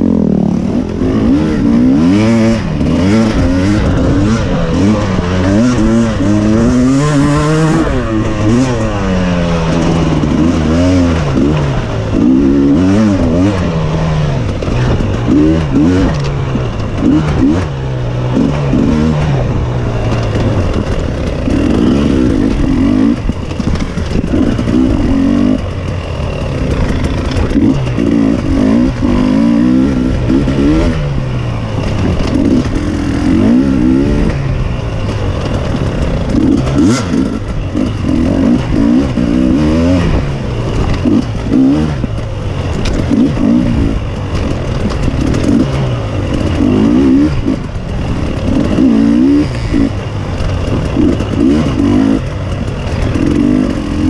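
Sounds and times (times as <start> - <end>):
racing engine revving: 0.0 - 54.0.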